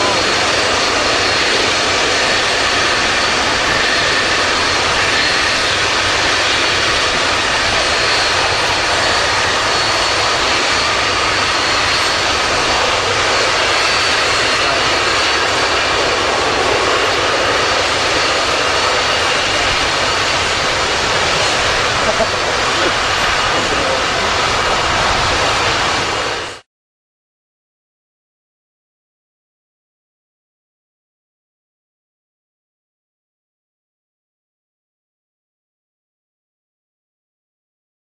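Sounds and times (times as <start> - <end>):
high engine whine: 0.0 - 26.6
jet engines rushing: 0.0 - 26.7.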